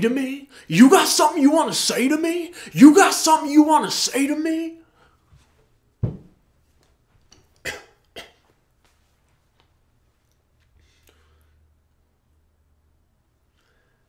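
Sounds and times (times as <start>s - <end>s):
man coughing: 7.6s - 8.4s.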